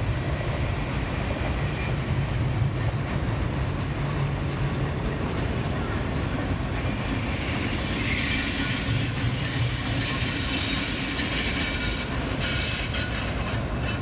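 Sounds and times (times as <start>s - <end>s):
train wheels rumbling on rails: 0.0s - 14.0s
faint wheel squeal: 7.2s - 14.0s.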